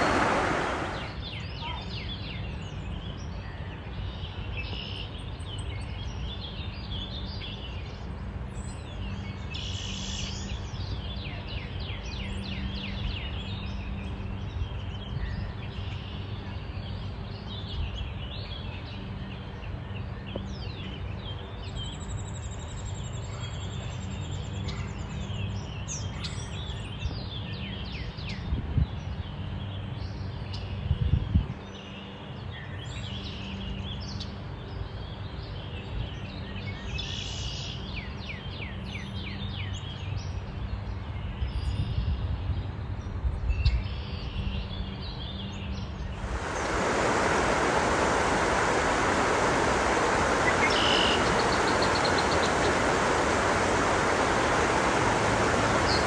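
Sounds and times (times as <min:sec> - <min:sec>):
low background noise: 0:43.9 - 0:56.0
small birds chirping: 0:45.3 - 0:56.0.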